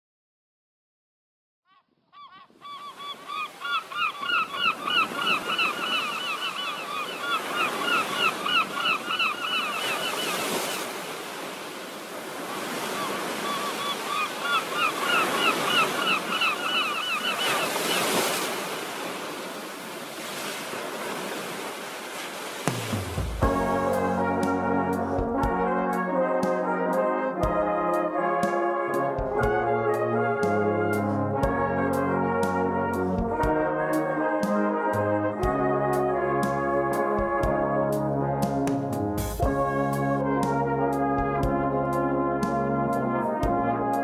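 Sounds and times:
birds calling: 1.7 - 11.0, 12.6 - 18.7
sea waves: 2.4 - 30.4.

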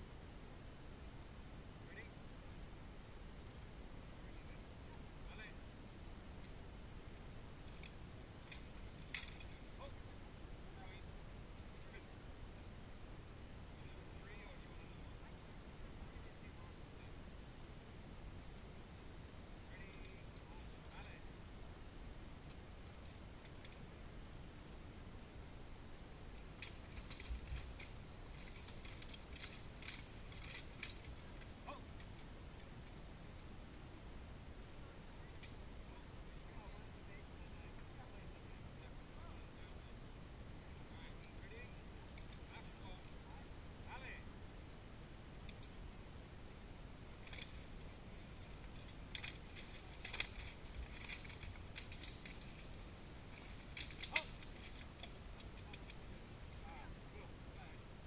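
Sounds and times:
armour and weapons clanking: 47.2 - 56.6.

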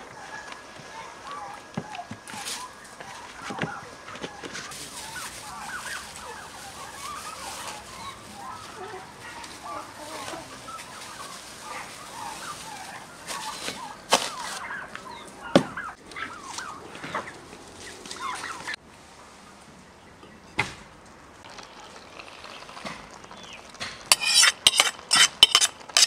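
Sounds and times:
chickens clucking and calling: 0.0 - 18.8.

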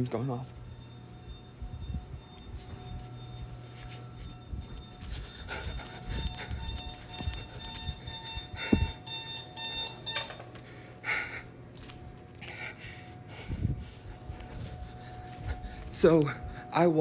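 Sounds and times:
electronic alarm beeping: 0.0 - 11.9, 12.5 - 17.0.

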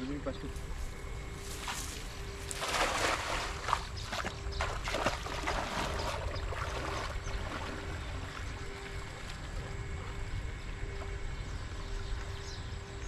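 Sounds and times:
water sloshing: 1.0 - 12.4
net splashing onto water: 2.5 - 3.8.

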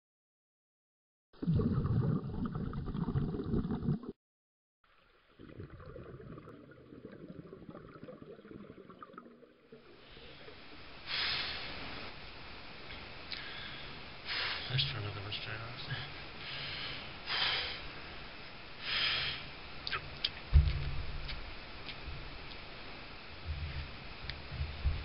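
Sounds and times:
underwater bubbling: 1.4 - 4.2, 4.9 - 11.0.

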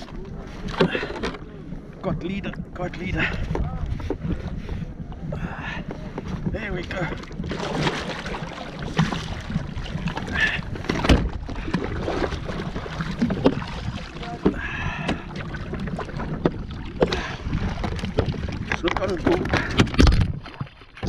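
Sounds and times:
wind rumbling on microphone: 0.0 - 21.0
water splashing: 6.6 - 21.0.

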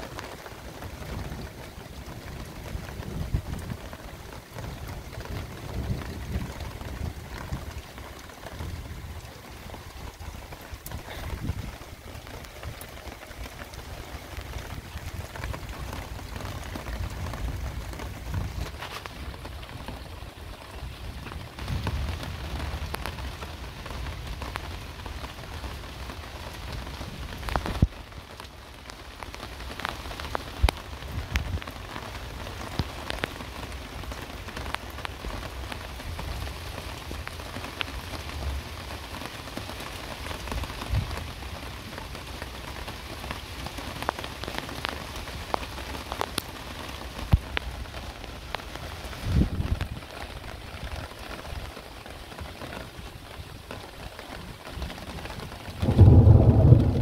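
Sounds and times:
heavy rain on hard surfaces: 0.0 - 57.0
low rumble: 55.8 - 57.0.

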